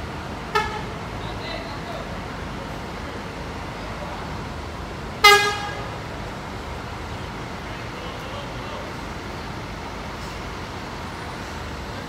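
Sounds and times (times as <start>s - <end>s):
bus engine noise: 0.0s - 12.0s
bus horn toot: 0.5s - 1.0s, 5.2s - 6.0s.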